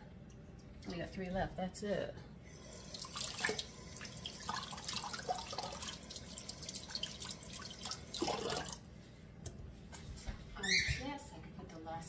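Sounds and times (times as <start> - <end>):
water splashing and dripping: 2.9 - 8.8.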